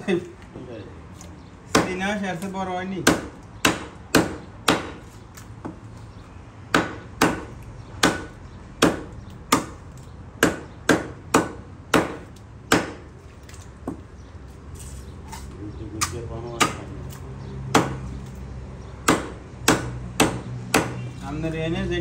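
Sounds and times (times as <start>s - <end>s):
cleaver chopping on wooden block: 1.2s - 2.2s, 3.0s - 5.8s, 6.7s - 13.1s, 16.0s - 18.1s, 19.0s - 21.2s.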